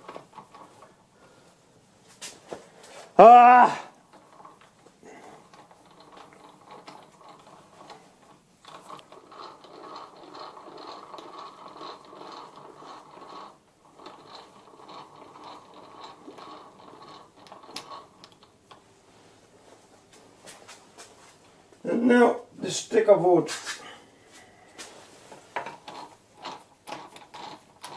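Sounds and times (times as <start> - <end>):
metallic ratcheting rattle: 4.1 - 18.8, 25.6 - 27.9.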